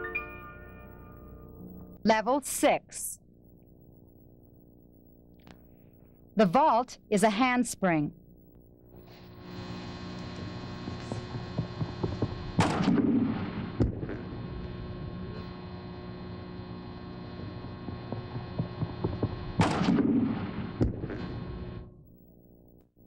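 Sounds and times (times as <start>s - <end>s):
electrical mains hum: 0.0s - 23.0s
running footsteps: 17.4s - 19.6s
thump on springboard: 18.6s - 21.3s.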